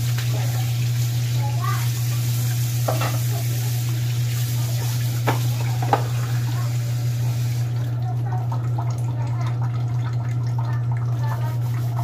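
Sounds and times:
tap running into sink: 2.5s - 4.0s, 4.6s - 12.0s
dishes knocking: 2.8s - 3.3s, 5.2s - 6.2s.

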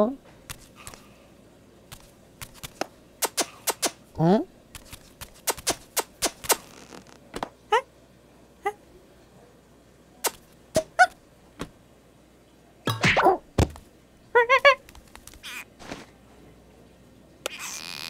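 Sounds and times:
sharp clicks: 2.5s - 4.0s
squeaky cartoon monkey vocal: 10.8s - 11.2s, 15.4s - 15.7s, 17.5s - 18.0s
heavy thunk: 13.6s - 13.8s
rising cartoon squeak: 17.5s - 18.0s.

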